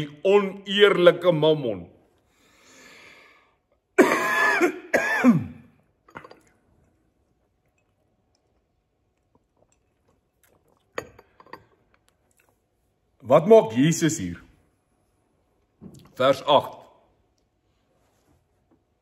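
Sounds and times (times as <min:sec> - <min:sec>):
man clearing his throat: 0:04.0 - 0:05.8.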